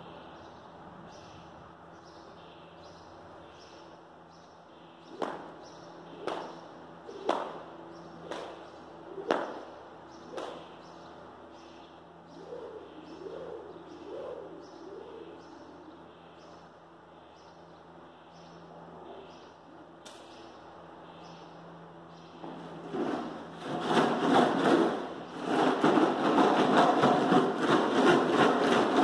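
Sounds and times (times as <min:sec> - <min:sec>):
sharp echoing smacks: 0:07.2 - 0:07.6, 0:09.3 - 0:09.6, 0:10.3 - 0:10.7.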